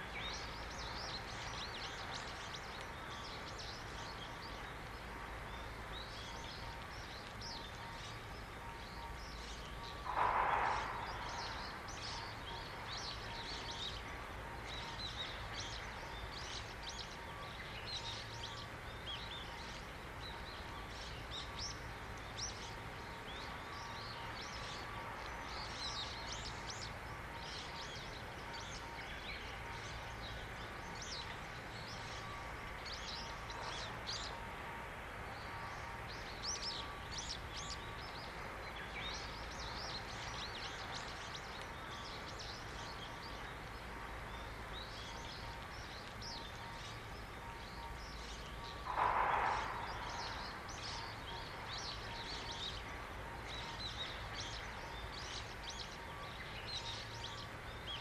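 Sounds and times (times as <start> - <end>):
distant hum and rumble: 0.0 - 57.9
small birds chirping: 0.0 - 58.0
rush of noise: 10.0 - 12.0, 48.8 - 51.4.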